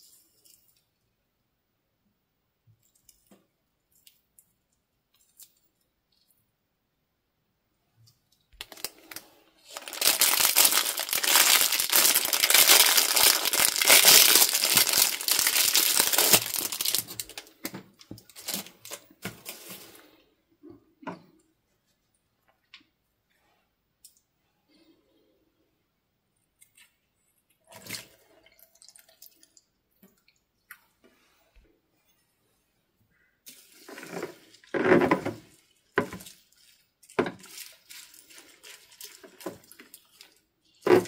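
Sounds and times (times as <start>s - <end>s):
plastic wrapper crinkling: 8.6s - 20.0s, 33.5s - 41.0s.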